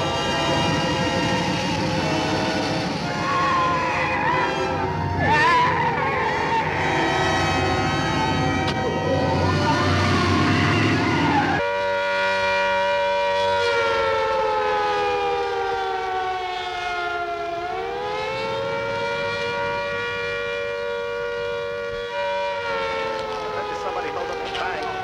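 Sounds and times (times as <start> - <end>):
loud noisy commotion: 0.0 - 11.6, 22.9 - 25.0
siren wailing: 0.0 - 25.0.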